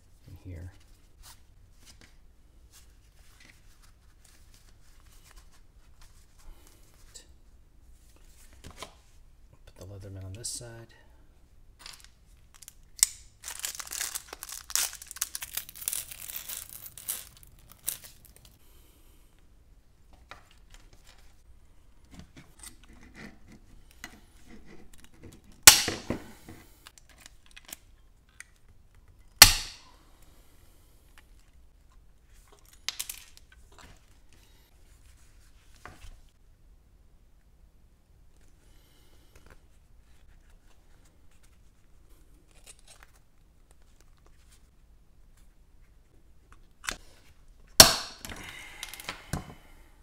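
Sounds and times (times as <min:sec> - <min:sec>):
rivet tool snapping: 0:25.7 - 0:26.2, 0:29.4 - 0:29.8, 0:47.8 - 0:49.1.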